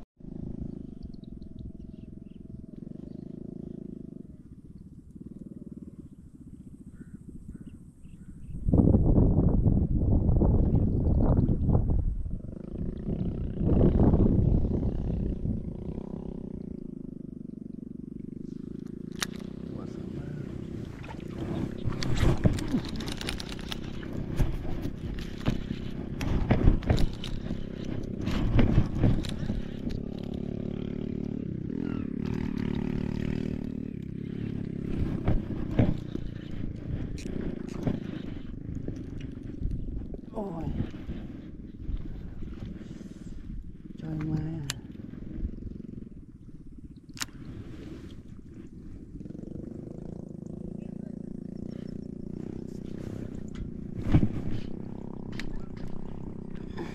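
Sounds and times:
low steady rumble: 0.0s - 56.9s
handling noise: 18.5s - 30.5s.

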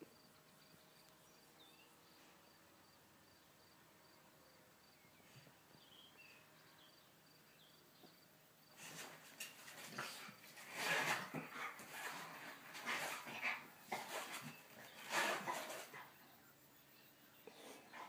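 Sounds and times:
cricket chirping: 0.0s - 5.2s, 5.8s - 8.8s, 14.3s - 18.0s.

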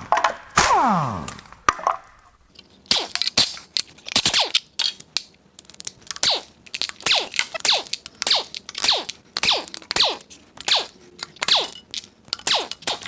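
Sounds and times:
pneumatic impact wrench: 0.6s - 1.5s.

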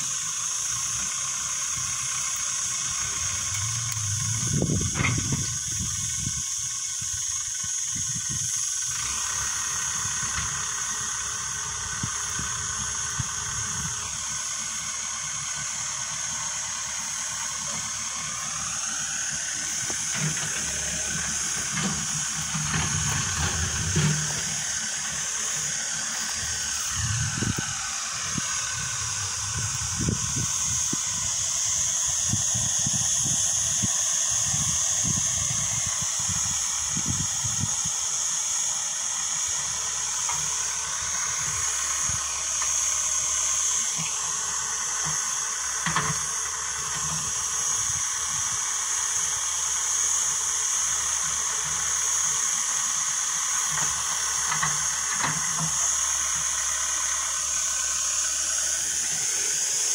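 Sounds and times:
backhoe engine whining: 0.0s - 59.9s
steady high hiss: 0.0s - 59.9s.

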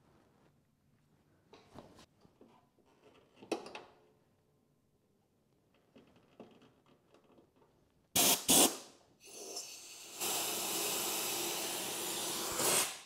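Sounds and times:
pressurized gas spraying from nozzle: 8.2s - 13.0s.

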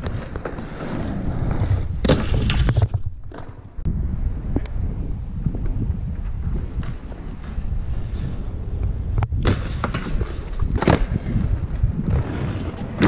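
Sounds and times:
skates clacking on ground: 0.0s - 3.9s, 9.1s - 11.8s
inline skate wheels rolling on paving: 0.0s - 13.0s.

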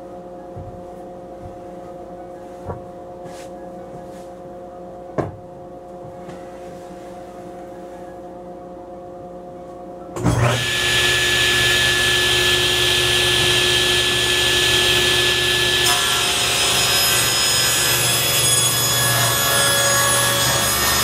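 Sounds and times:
table saw motor running: 10.2s - 21.0s.

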